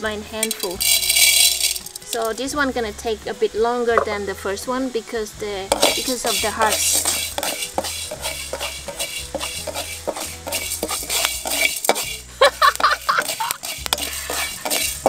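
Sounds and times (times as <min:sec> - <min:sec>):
background music with bass: 0:00.0 - 0:15.0
spatula stirring rice in wok: 0:05.7 - 0:15.0.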